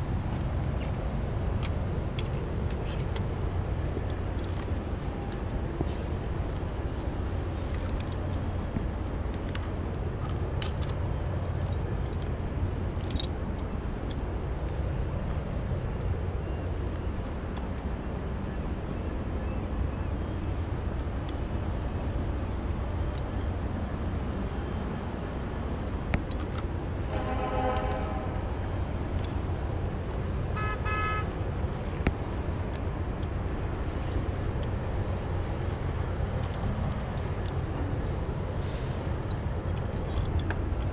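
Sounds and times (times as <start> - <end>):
distant city traffic: 0.0 - 40.9
steady low rumble: 0.0 - 40.9
wind: 0.0 - 40.9
metal hardware clinking: 7.6 - 14.2
distant horn toot: 27.1 - 28.5, 30.6 - 31.3.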